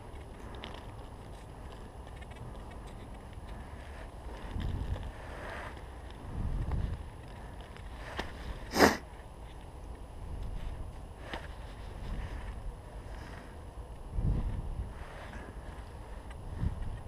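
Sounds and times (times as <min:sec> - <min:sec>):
hands sifting soil and leaves: 0:10.4 - 0:17.0
low rumbles on microphone: 0:14.1 - 0:17.0.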